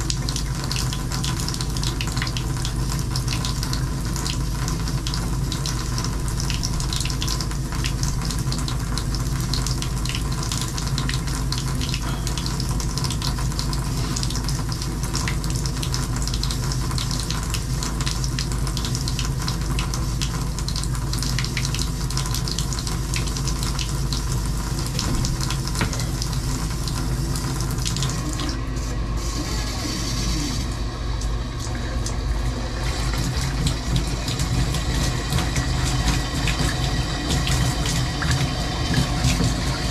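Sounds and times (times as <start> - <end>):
water splashing into bathtub: 0.0 - 39.9.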